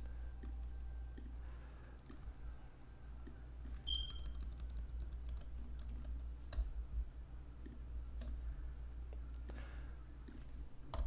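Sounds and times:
steady low hum: 0.0s - 11.0s
keyboard typing: 0.4s - 1.3s, 3.2s - 6.7s.

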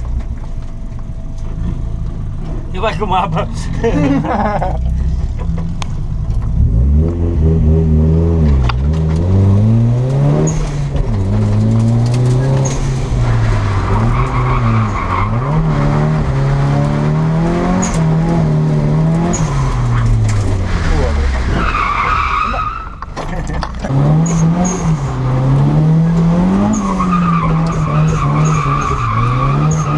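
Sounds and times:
car engine revving hard: 6.6s - 21.8s, 23.7s - 29.9s
tyre squeal and skidding: 10.4s - 11.0s, 12.2s - 18.1s, 19.1s - 23.3s, 26.6s - 29.9s.

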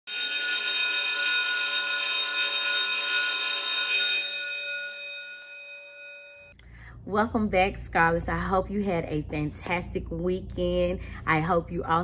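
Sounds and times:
electric bell ringing: 0.1s - 6.6s.

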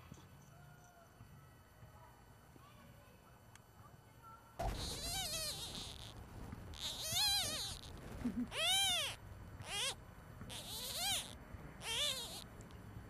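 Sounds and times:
kitten mewing: 4.6s - 6.2s, 6.8s - 12.5s.

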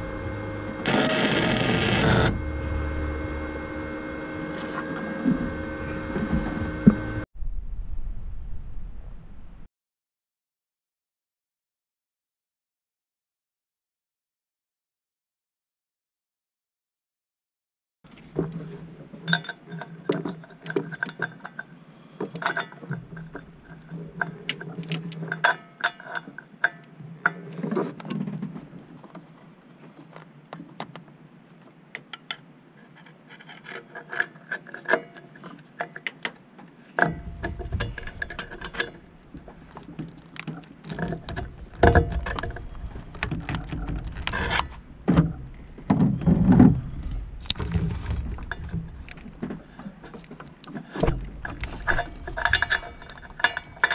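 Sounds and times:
steel tools clinking on metal: 19.3s - 19.9s, 51.7s - 53.9s
heavy knocks and thumps: 45.0s - 49.6s.

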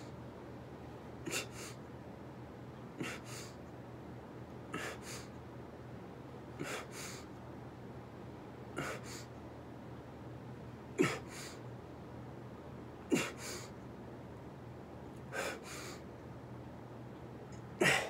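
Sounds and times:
man breathing sharply: 6.6s - 7.3s, 15.3s - 16.0s.

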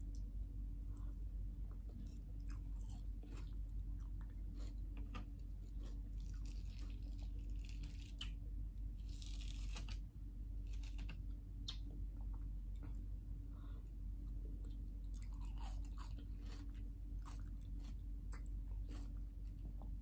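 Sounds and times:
steady low hum: 0.0s - 20.0s
wet smacking and chewing: 1.7s - 7.7s, 14.6s - 20.0s.

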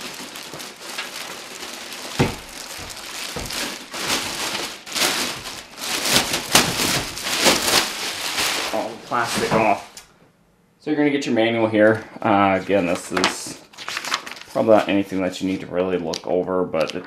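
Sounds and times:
plastic bag crinkling: 0.0s - 10.0s, 12.6s - 15.5s.

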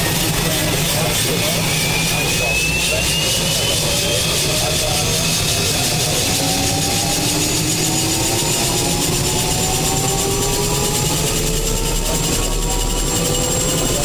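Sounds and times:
helicopter engine and rotor whine: 0.0s - 14.0s.

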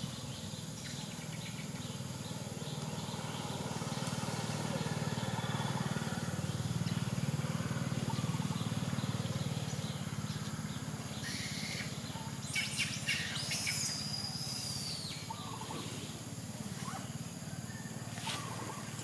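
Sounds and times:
bird chirps: 8.0s - 15.9s.

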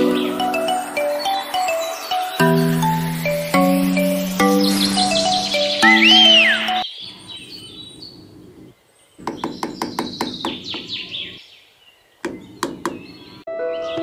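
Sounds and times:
music: 0.0s - 6.8s, 13.5s - 14.0s
birds chirping: 0.0s - 14.0s
small hammer tapping wood: 9.2s - 10.9s, 12.2s - 13.2s.

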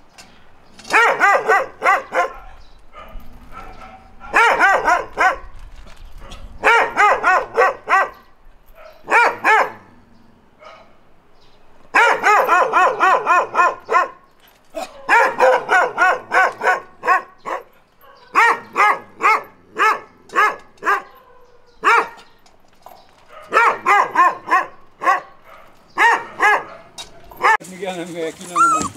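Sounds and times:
dog barking: 0.9s - 5.5s, 6.2s - 9.9s, 10.6s - 11.0s, 11.9s - 22.2s, 23.3s - 27.6s.

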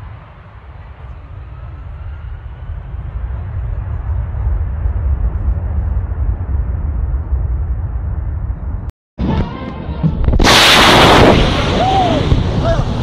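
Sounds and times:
jet engines roaring at high thrust: 0.0s - 8.6s.

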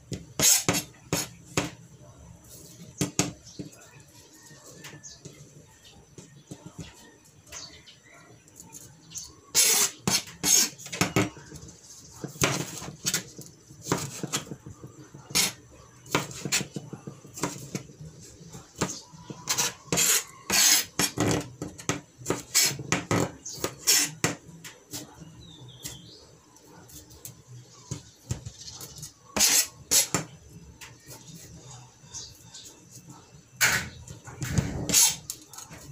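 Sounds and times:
knife cutting on plastic board: 0.1s - 1.7s, 18.8s - 25.1s, 28.8s - 30.3s.

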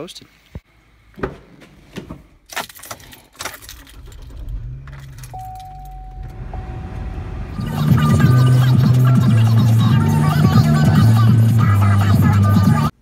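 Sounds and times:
keys jangling: 2.5s - 6.1s
car engine starting: 2.5s - 13.0s
steady tone: 4.3s - 12.0s.

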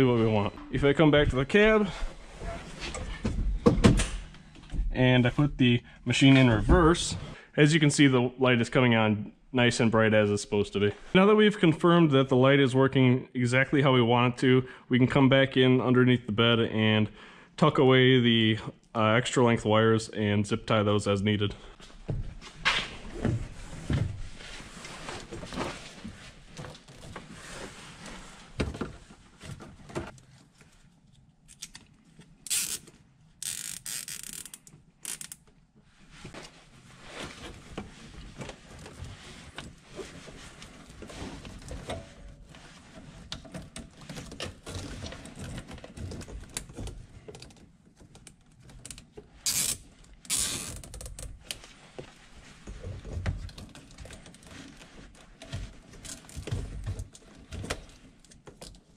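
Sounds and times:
wires and plastic rustling: 21.8s - 58.9s
zip ties ratcheting: 32.4s - 35.4s, 49.4s - 51.1s.

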